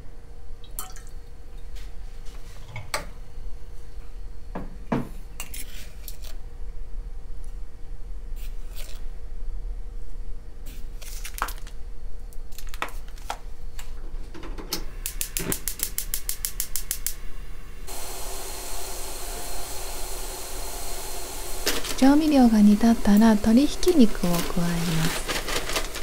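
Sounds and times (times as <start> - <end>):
gas flame hissing: 14.6 - 26.0.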